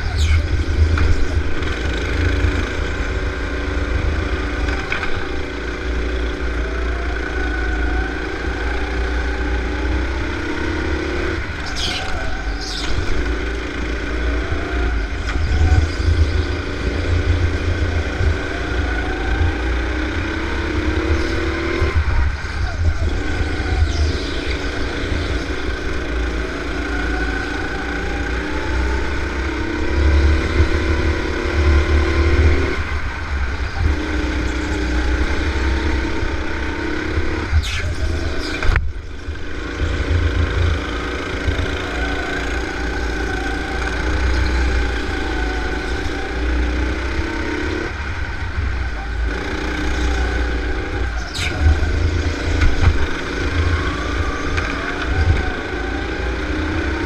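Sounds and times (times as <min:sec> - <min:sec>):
go-kart engine racing: 0:00.0 - 0:57.0.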